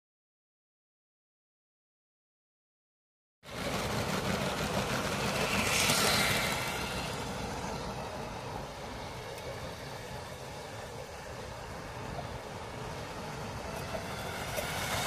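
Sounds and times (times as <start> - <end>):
toy train running on plastic track: 3.5 - 15.0.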